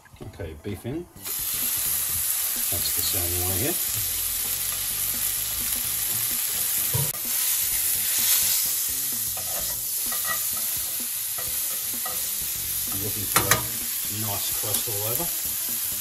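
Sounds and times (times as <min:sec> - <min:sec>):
meat sizzling in a frying pan: 0:01.2 - 0:16.0
metal tongs knock: 0:12.9 - 0:13.8.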